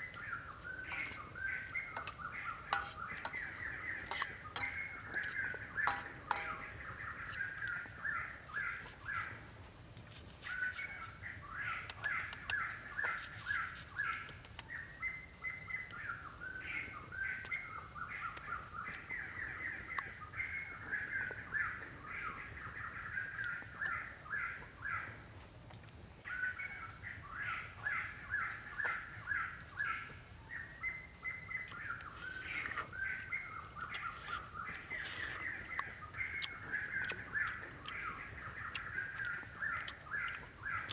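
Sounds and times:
high-pitched insect drone: 0:00.0 - 0:09.5, 0:31.6 - 0:40.9.

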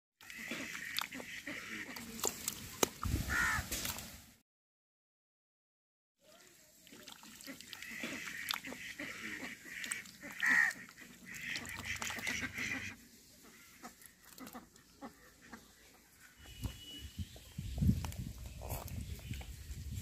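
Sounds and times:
nasal duck calls: 0:00.2 - 0:02.2, 0:07.4 - 0:15.6
duck dabbling in mud and water: 0:00.2 - 0:04.1, 0:06.3 - 0:17.0.

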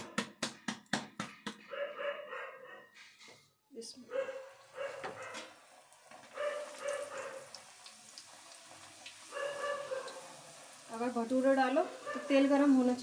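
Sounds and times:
hot oil sizzling: 0:04.5 - 0:13.0.

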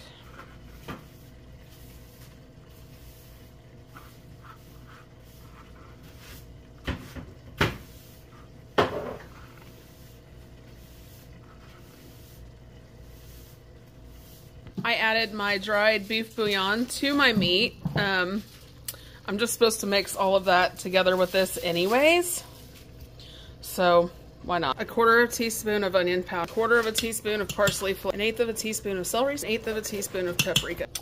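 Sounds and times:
low electrical hum: 0:00.0 - 0:31.0
kitchen knocks and clunks: 0:06.8 - 0:07.9, 0:08.7 - 0:09.3, 0:17.3 - 0:18.2.

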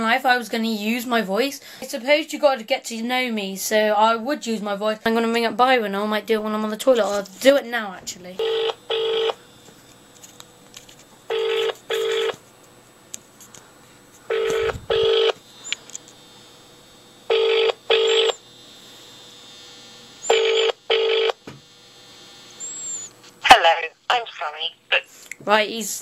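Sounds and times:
telephone ringing tone: 0:08.4 - 0:09.4, 0:11.3 - 0:12.4, 0:14.3 - 0:15.4, 0:17.3 - 0:18.4, 0:20.3 - 0:21.4.

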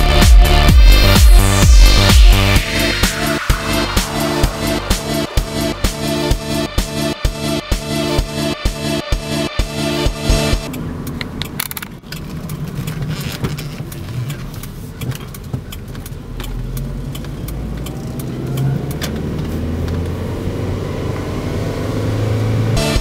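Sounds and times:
car interior road rumble: 0:10.6 - 0:21.9.

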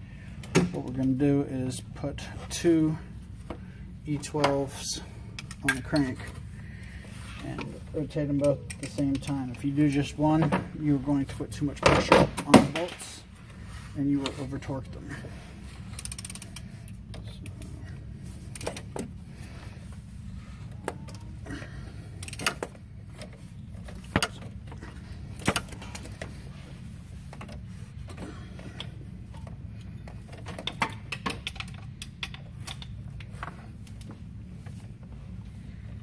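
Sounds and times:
steady low hum: 0:00.0 - 0:36.0
hand ratchet turning: 0:15.8 - 0:17.7.

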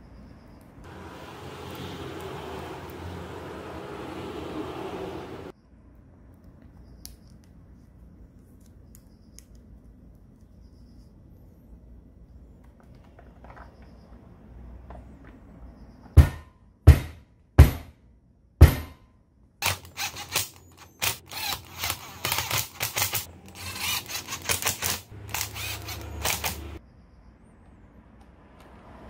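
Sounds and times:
cordless drill driving screws: 0:19.6 - 0:26.8.

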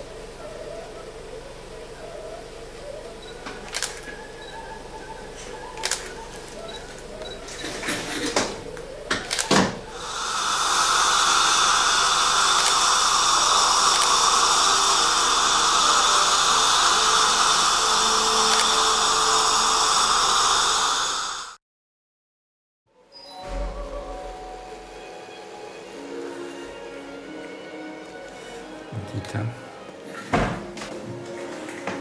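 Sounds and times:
dental equipment hissing whir: 0:03.2 - 0:21.6
sharp clicks: 0:03.6 - 0:04.1, 0:09.1 - 0:09.6, 0:12.5 - 0:12.9, 0:13.9 - 0:14.2.

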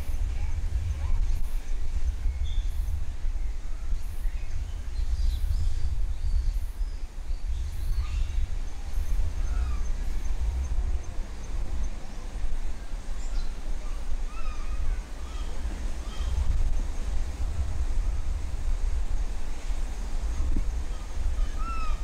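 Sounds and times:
low outdoor rumble: 0:07.6 - 0:22.0.

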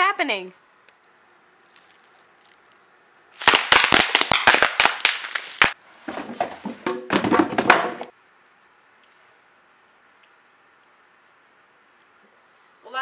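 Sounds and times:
crackling rushing burst: 0:03.4 - 0:05.8
firecracker-like crackling pops: 0:03.4 - 0:05.8.

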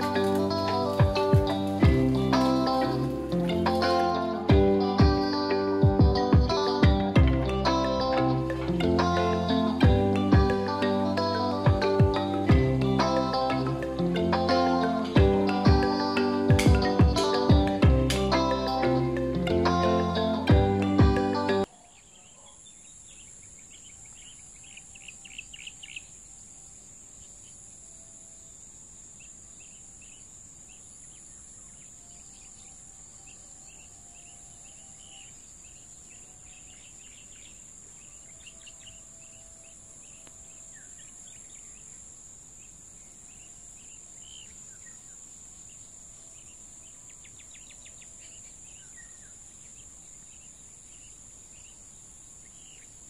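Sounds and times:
high-pitched insect drone: 0:00.0 - 0:21.6
birds chirping: 0:00.0 - 0:27.6, 0:29.2 - 0:53.0.

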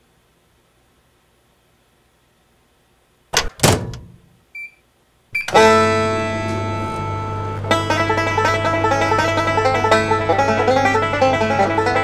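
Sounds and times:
microwave door thudding shut: 0:03.4 - 0:04.3
keypad beep: 0:05.4 - 0:05.6
banjo picking: 0:05.5 - 0:12.0
strummed guitar chord: 0:05.5 - 0:12.0.

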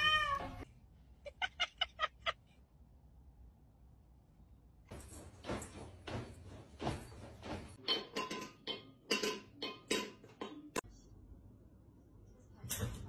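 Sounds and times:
clinks on metal food bowl: 0:07.8 - 0:10.8.

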